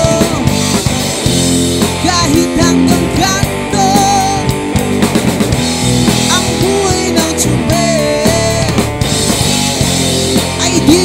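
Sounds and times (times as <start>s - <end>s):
man singing: 0.0s - 0.8s, 1.9s - 4.6s, 6.2s - 8.9s, 10.4s - 11.0s
drum kit: 0.0s - 11.0s
electric bass: 0.0s - 11.0s
electric guitar: 0.0s - 11.0s.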